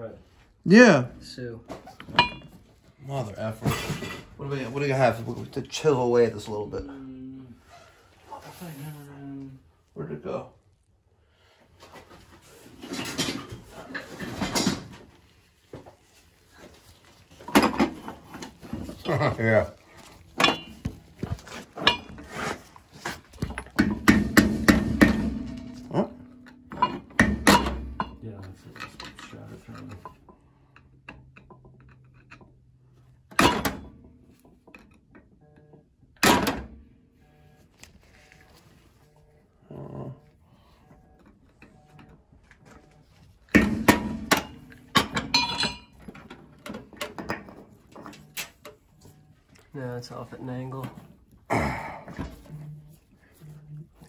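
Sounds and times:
metallic ring: 0:02.2 - 0:02.6, 0:44.4 - 0:46.0
metal parts clanking: 0:12.7 - 0:15.0, 0:17.3 - 0:22.6, 0:43.5 - 0:48.7.

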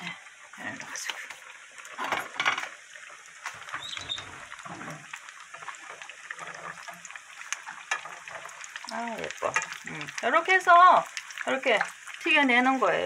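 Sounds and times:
oil sizzling with crackling pops: 0:00.0 - 0:13.0.

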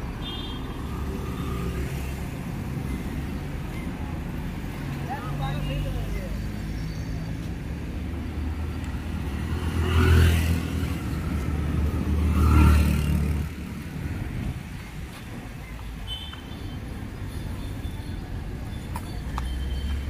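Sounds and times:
rumble of traffic: 0:00.0 - 0:20.0
vehicle passing close by: 0:08.4 - 0:14.2.

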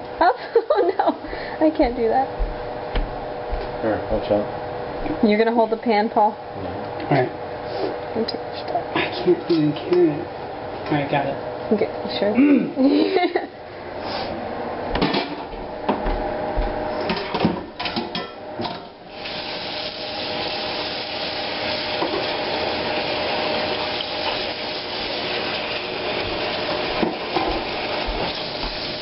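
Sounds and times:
dishes clattering in sink: 0:17.0 - 0:18.9, 0:22.0 - 0:22.4
tap running into frying pan: 0:22.0 - 0:22.4, 0:26.2 - 0:28.9.

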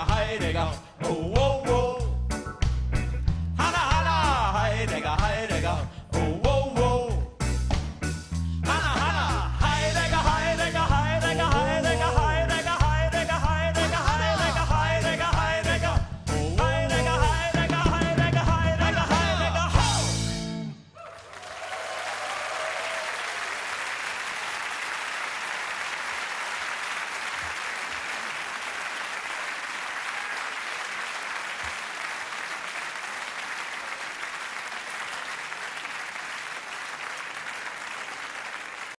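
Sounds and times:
rock band final chord: 0:09.6 - 0:12.8
audience applauding: 0:21.0 - 0:39.0.

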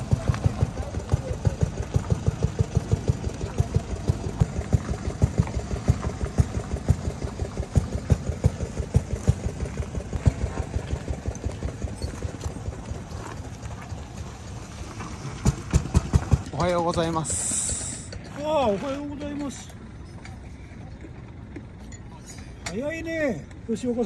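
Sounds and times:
stationary engine putt-putt: 0:00.0 - 0:24.0.

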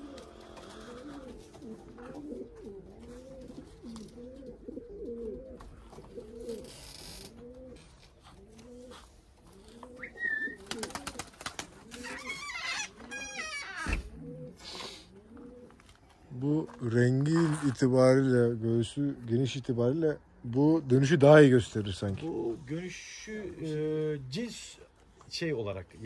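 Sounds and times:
pigeons cooing: 0:00.0 - 0:18.3.

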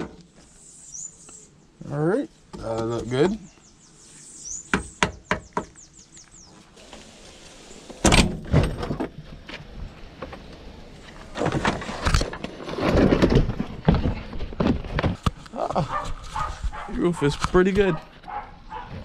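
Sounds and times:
scraping: 0:11.0 - 0:16.9
roof lining cracks and knocks: 0:11.3 - 0:15.4.

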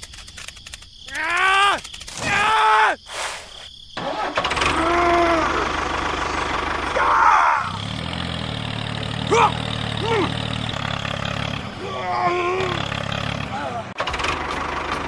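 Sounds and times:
tractor engine starting and idling: 0:04.0 - 0:15.0.

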